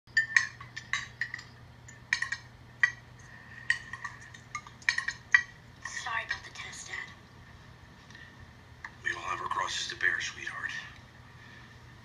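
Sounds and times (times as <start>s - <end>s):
cutlery clinking on plates: 0.2s - 3.0s, 3.6s - 5.5s.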